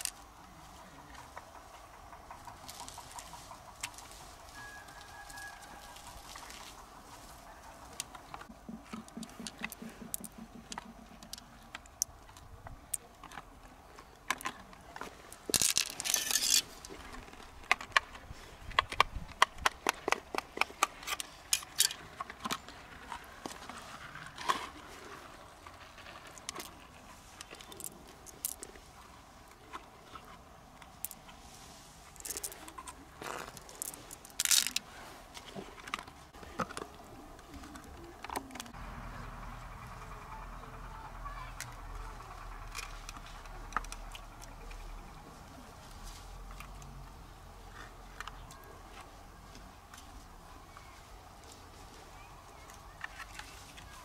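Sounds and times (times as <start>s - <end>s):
rustles and scrapes: 0.0s - 38.8s, 41.6s - 54.0s
pearls and shells clicking: 8.0s - 18.1s, 18.7s - 23.2s, 26.0s - 28.9s, 32.0s - 38.8s.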